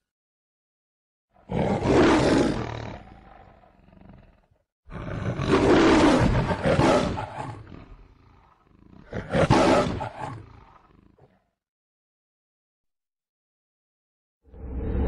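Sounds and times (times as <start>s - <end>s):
pitched-up lion roar: 1.4s - 11.5s.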